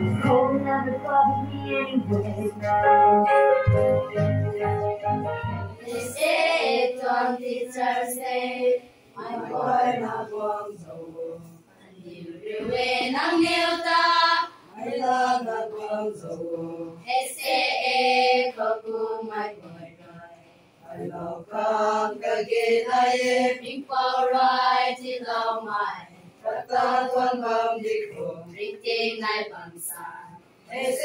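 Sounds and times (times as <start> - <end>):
electronic keyboard: 0.0 - 6.2
children singing in chorus: 5.8 - 10.7, 12.1 - 19.4.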